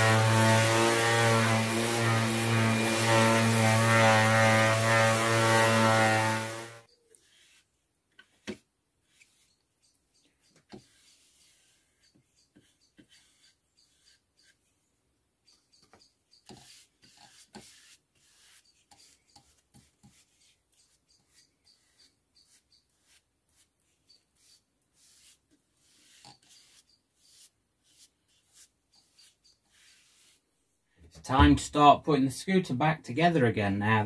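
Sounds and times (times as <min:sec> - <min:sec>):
paintbrush swishing on wood: 0:07.1 - 0:09.6, 0:10.7 - 0:14.7, 0:16.4 - 0:30.7.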